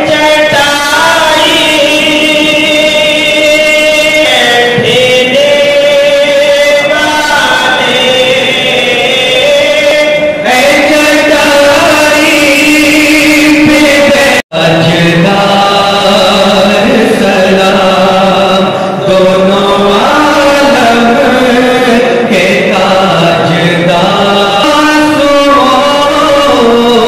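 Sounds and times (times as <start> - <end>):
man chanting over loudspeaker: 0.0 - 27.0.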